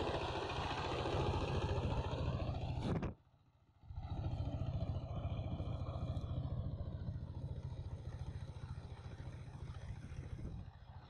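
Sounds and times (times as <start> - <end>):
diesel engine chugging: 4.0 - 11.0.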